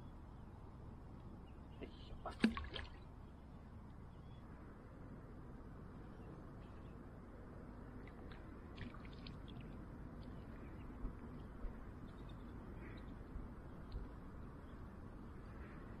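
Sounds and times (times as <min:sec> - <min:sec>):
faint bird chirps: 0:03.1 - 0:04.5
steady low rumble: 0:03.1 - 0:16.0.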